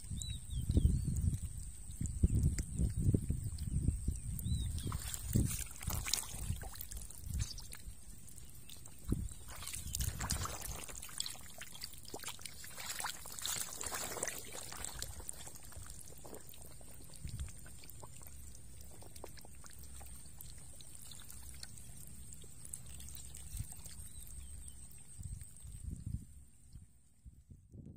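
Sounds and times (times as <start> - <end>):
faint trickle of water: 0.0 - 27.9
fish flapping in wet mud: 4.6 - 21.7.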